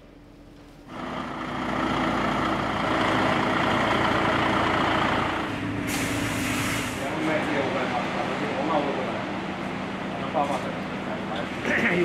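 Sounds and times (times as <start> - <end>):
diesel truck engine running: 0.8 - 12.0.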